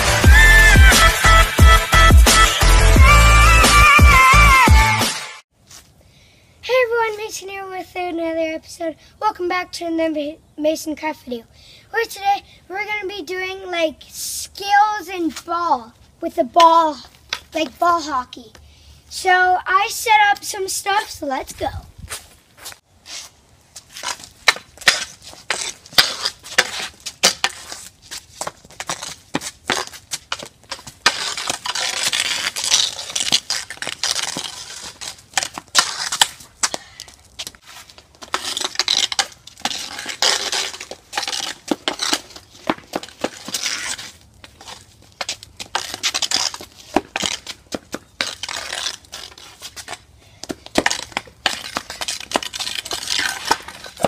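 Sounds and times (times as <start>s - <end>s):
hockey stick scraping on concrete: 5.6s - 6.0s, 12.0s - 54.0s.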